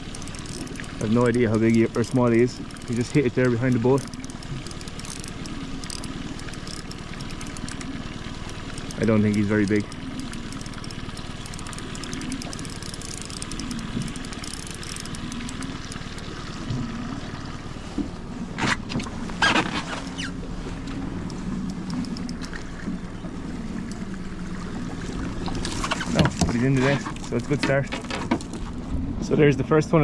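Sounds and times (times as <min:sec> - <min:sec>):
fishing reel winding: 0:00.0 - 0:16.1
lapping water: 0:00.0 - 0:18.9
small boat engine ticking over: 0:00.0 - 0:28.8
wind: 0:00.0 - 0:30.0.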